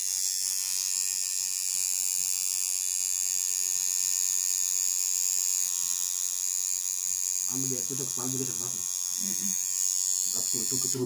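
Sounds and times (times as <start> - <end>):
tattoo machine buzzing: 0.0 - 11.0.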